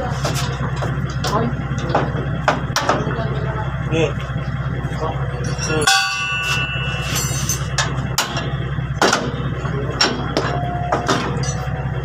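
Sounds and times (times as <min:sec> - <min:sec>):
steady low hum: 0:00.0 - 0:12.0
steel tools clanking on metal: 0:05.4 - 0:08.6, 0:09.2 - 0:11.7.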